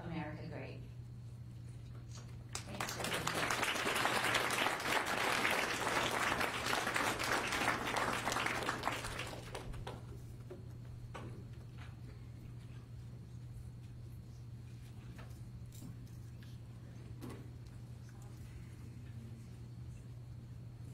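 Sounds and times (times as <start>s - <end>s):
audience applauding: 2.5s - 10.2s.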